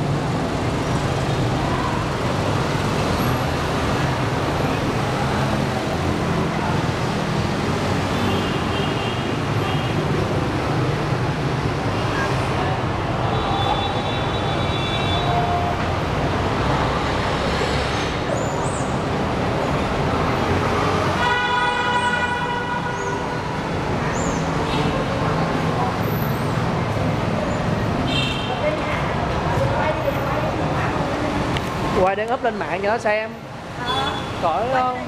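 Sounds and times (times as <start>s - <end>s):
road traffic noise: 0.0s - 35.0s
car horn: 13.3s - 15.7s, 21.2s - 23.5s.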